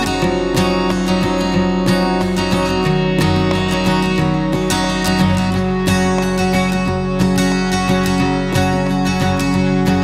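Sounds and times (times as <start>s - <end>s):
strummed acoustic guitar music: 0.0s - 10.0s.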